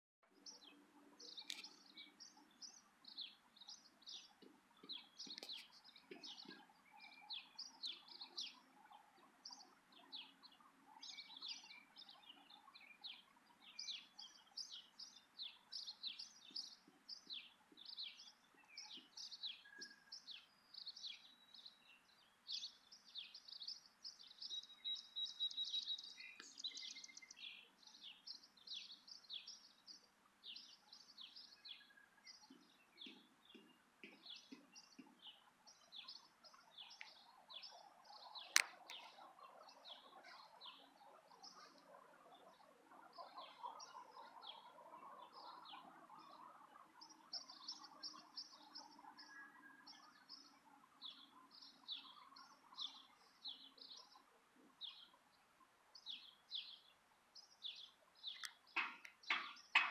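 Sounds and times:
small birds chirping: 0:00.2 - 0:59.9
bird trill: 0:57.7 - 0:59.9.

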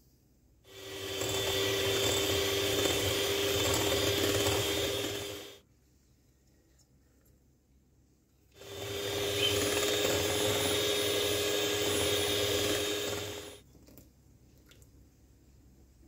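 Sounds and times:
electric hand mixer whirring: 0:00.7 - 0:05.6, 0:08.6 - 0:13.6.

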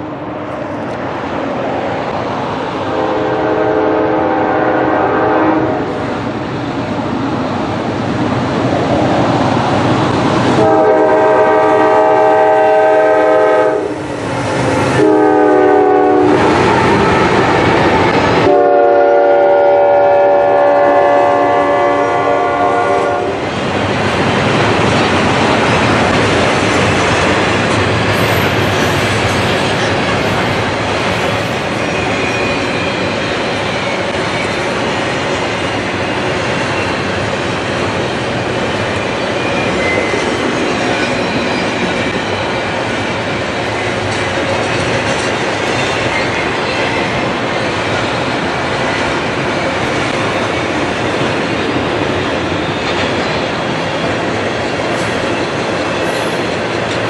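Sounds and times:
train wheels on rails: 0:00.0 - 0:57.0
locomotive air horn blasts: 0:02.9 - 0:05.9, 0:10.6 - 0:14.0, 0:15.0 - 0:16.5, 0:18.4 - 0:23.4.

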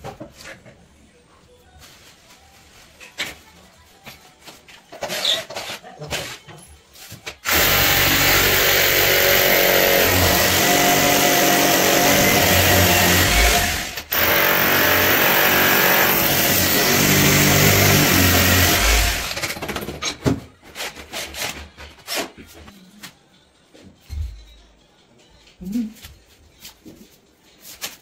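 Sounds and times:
electric power tool running: 0:07.5 - 0:19.4.

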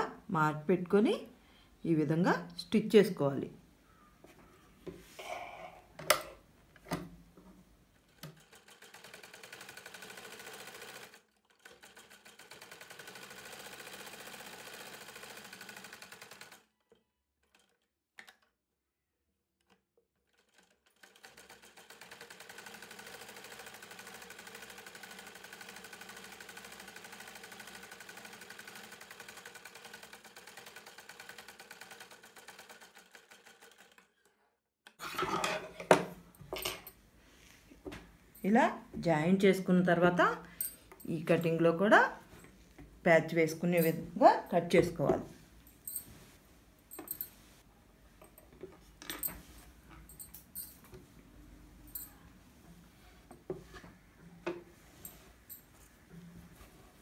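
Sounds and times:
sewing machine stitching: 0:08.0 - 0:17.9, 0:20.3 - 0:34.4.

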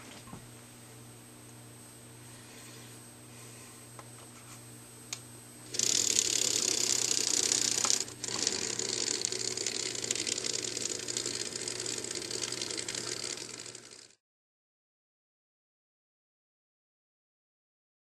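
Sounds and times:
model train motor whirring: 0:05.7 - 0:14.2.

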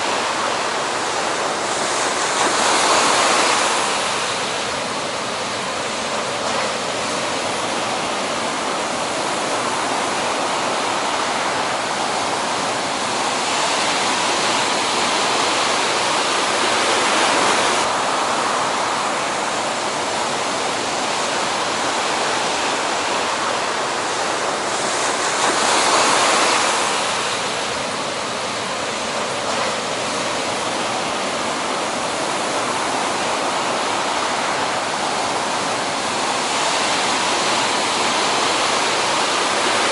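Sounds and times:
heavy ocean surf breaking: 0:00.0 - 0:39.9.

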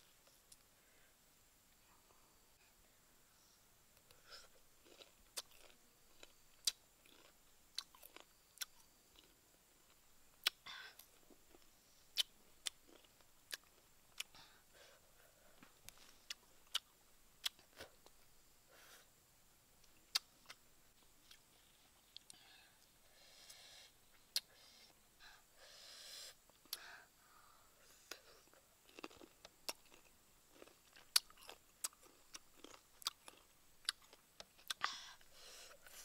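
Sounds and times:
wet crunches of chewing fruit: 0:04.0 - 0:14.4, 0:15.9 - 0:18.2, 0:19.8 - 0:20.6, 0:28.1 - 0:35.2.

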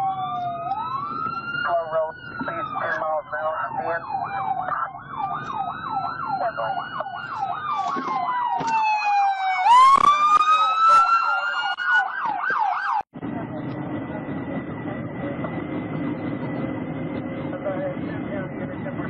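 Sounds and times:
siren wailing: 0:00.0 - 0:13.1
siren yelping: 0:00.0 - 0:13.1.

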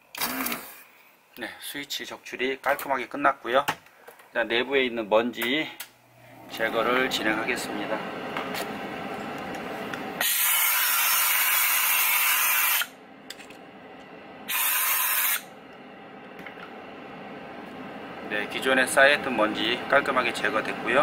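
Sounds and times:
compressed air hissing blasts: 0:10.2 - 0:12.9, 0:14.5 - 0:15.5.

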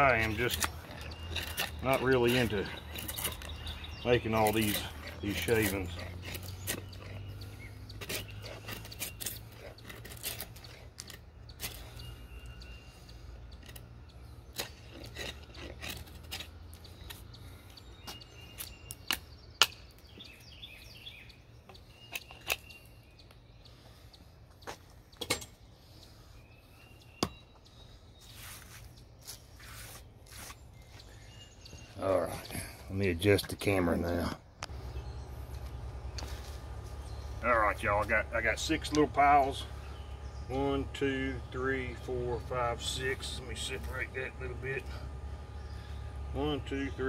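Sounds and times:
knife shaving wood: 0:00.0 - 0:12.6, 0:14.4 - 0:17.6
birds chirping faintly: 0:00.0 - 0:47.0.

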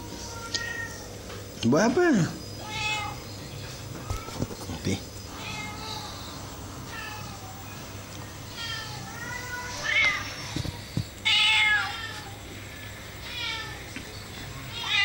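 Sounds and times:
cat meowing: 0:00.1 - 0:01.1, 0:02.6 - 0:03.3, 0:05.3 - 0:07.6, 0:08.5 - 0:10.5, 0:11.2 - 0:12.4, 0:13.2 - 0:13.9, 0:14.7 - 0:15.0.

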